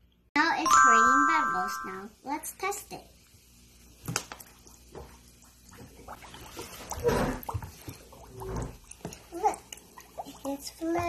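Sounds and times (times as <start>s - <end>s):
water splashing in plastic basin: 4.0s - 11.0s.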